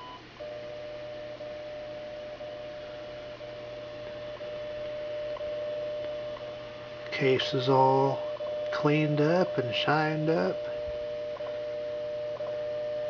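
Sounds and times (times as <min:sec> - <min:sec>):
faint hum: 0:00.0 - 0:13.0
steady lower tone: 0:00.0 - 0:13.0.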